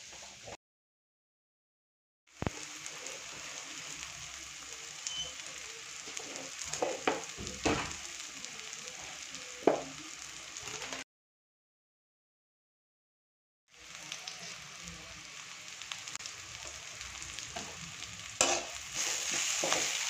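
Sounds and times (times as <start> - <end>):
vegetables sizzling in a pan: 0.0 - 0.6, 2.3 - 11.0, 13.7 - 20.0.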